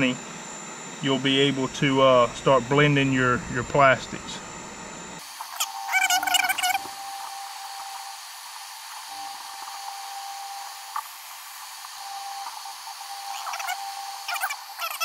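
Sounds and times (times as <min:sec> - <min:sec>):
heat gun hissing: 0:01.0 - 0:15.0
warbling call: 0:05.5 - 0:07.0, 0:13.2 - 0:15.0.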